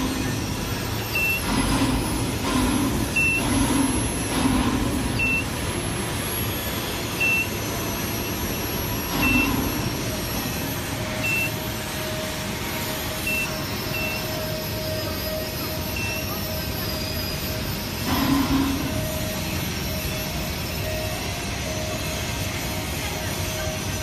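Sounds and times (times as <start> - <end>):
industrial workshop noise: 0.0 - 24.0
thin high whine: 0.0 - 24.0
short high electronic beep: 9.1 - 9.8, 11.2 - 11.6, 13.2 - 16.4.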